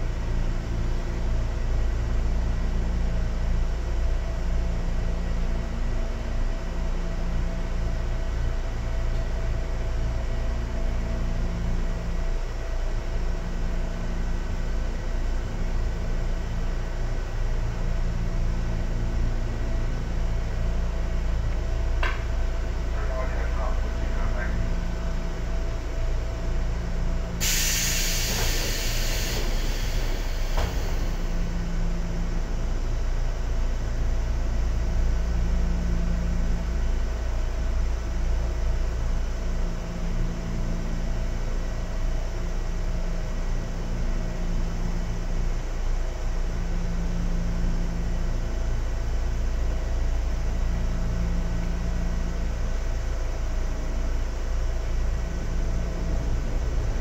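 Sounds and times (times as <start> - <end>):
railcar wheels and motors rumbling: 0.0 - 57.0
hiss: 27.4 - 31.5.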